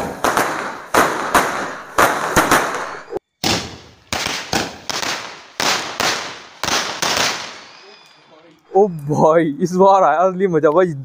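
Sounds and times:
firework bangs with echo: 0.0s - 8.0s.

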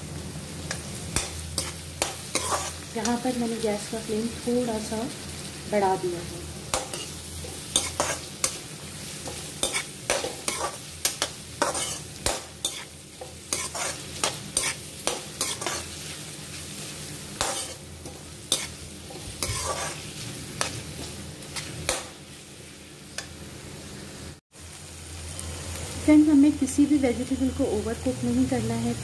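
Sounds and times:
onions sizzling in hot oil: 0.0s - 29.0s
metal spatula scraping a pan: 0.7s - 2.8s, 6.8s - 8.6s, 9.2s - 16.0s, 17.4s - 20.8s.

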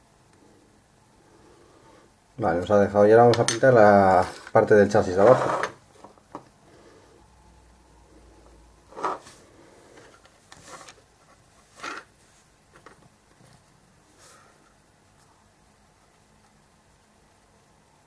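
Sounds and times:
small clicks and rustles: 9.0s - 13.8s.

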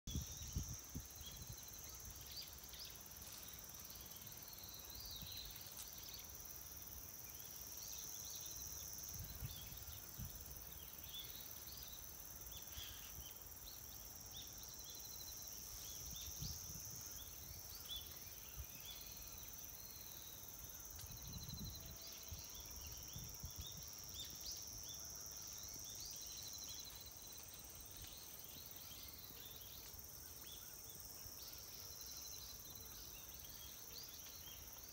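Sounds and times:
high-pitched insect chorus: 0.1s - 34.9s.

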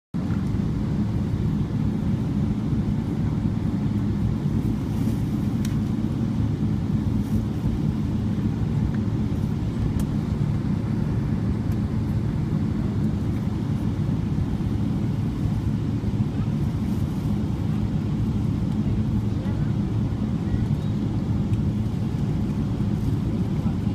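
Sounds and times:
airplane taxiing rumble from cabin: 0.2s - 23.9s.

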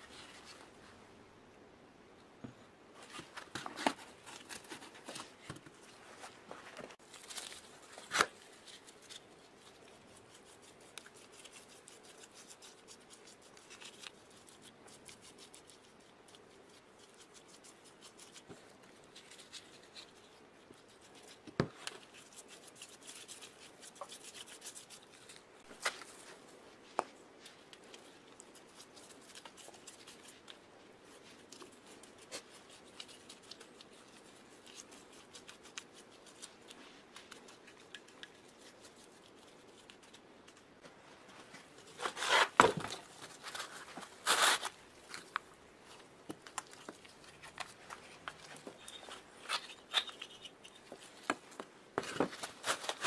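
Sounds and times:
rubbing and scraping of parts: 40.6s - 45.4s, 46.0s - 53.0s.

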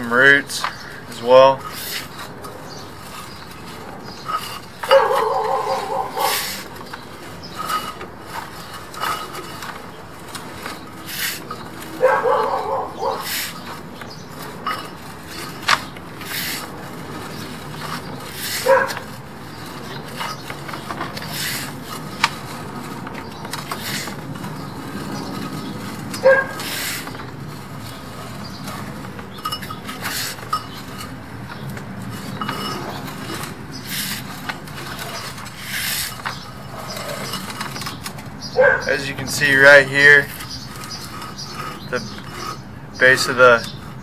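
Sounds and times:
cable rubbing and scraping on reel: 1.6s - 31.2s, 39.0s - 43.8s.

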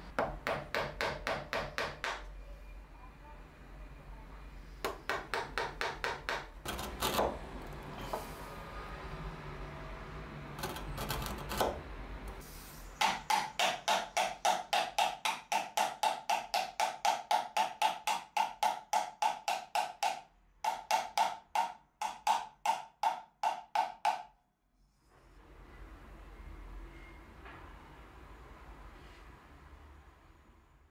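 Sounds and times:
hammer tapping on wood: 0.2s - 2.3s, 4.8s - 6.5s, 13.0s - 24.3s.

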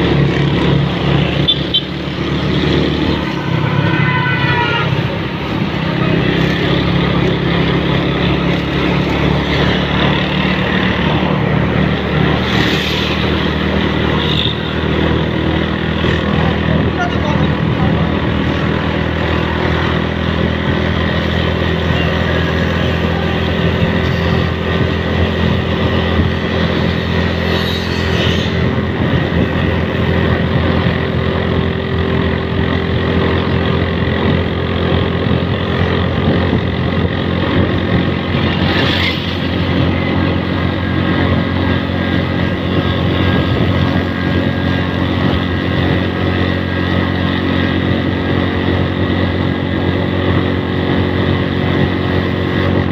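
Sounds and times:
motorcycle engine cruising: 0.0s - 52.9s
road and air noise: 0.0s - 52.9s.

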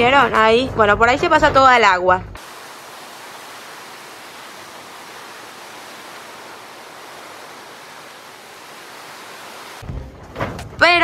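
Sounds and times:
rain on a plastic tarp: 2.4s - 9.9s.

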